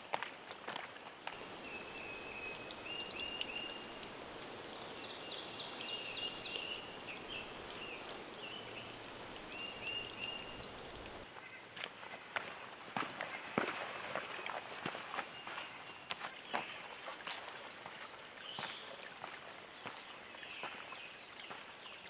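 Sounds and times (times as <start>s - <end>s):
running water: 0.1s - 11.3s
songbird chirping: 1.3s - 11.6s, 14.4s - 22.0s.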